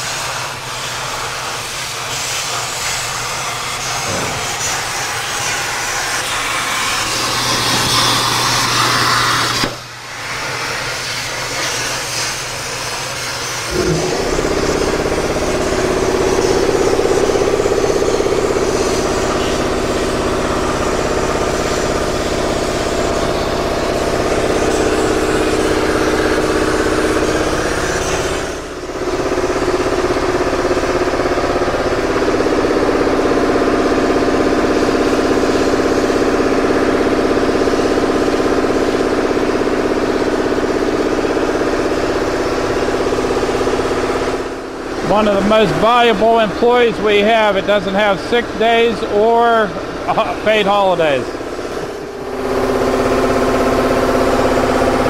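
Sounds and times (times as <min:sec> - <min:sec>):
plasma torch arc hissing: 0:00.0 - 0:28.8
machine hum: 0:03.1 - 0:10.8, 0:13.5 - 0:55.0.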